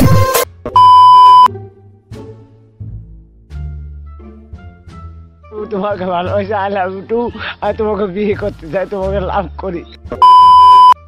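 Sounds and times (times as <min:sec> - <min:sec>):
electronic test tone beep: 0:00.7 - 0:01.5, 0:10.2 - 0:11.0.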